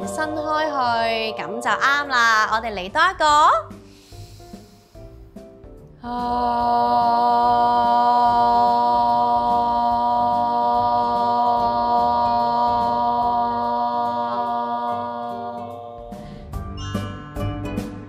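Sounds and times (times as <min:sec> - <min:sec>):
voices singing sustained note: 0:00.0 - 0:02.3, 0:06.0 - 0:16.4.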